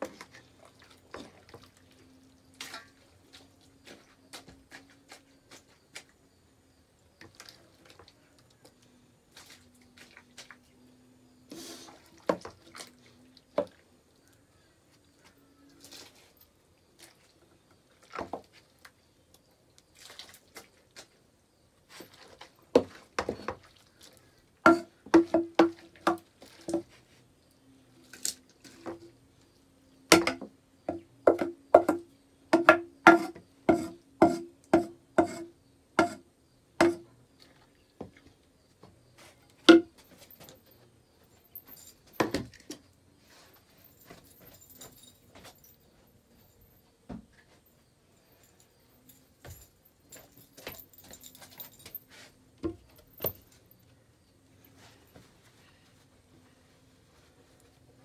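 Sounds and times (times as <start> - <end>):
metal ladle knocking on pots: 24.7 - 25.8.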